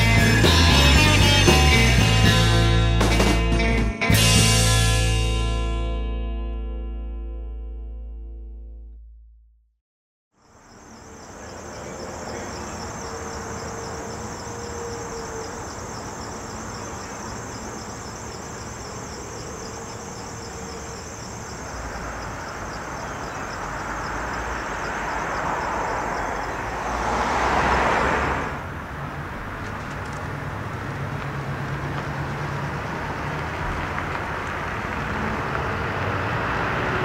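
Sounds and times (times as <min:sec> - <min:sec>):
road vehicle passing: 0:10.4 - 0:37.0
insect-like pulsing trill: 0:10.5 - 0:26.6.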